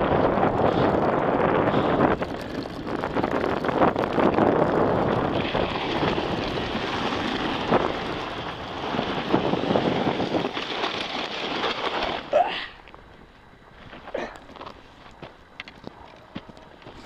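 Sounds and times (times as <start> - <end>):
wind on microphone: 0.0 - 11.6
sled sliding over snow: 0.0 - 15.2.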